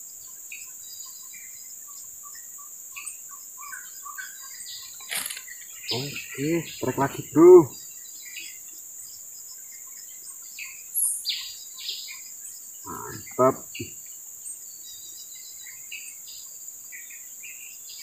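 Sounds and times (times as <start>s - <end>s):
short bird chirps: 4.8s - 7.7s.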